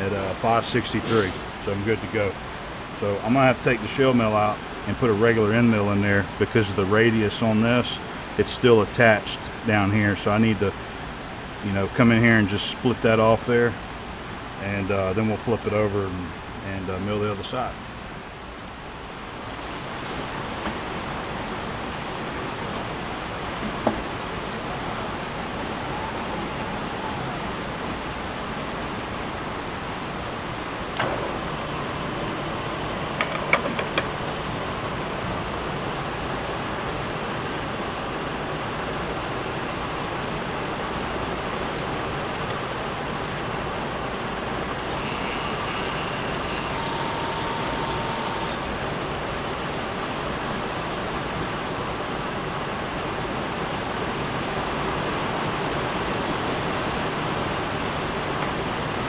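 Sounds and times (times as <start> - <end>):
milling machine cutting metal: 44.9 - 48.7
shrill high whine: 44.9 - 48.8.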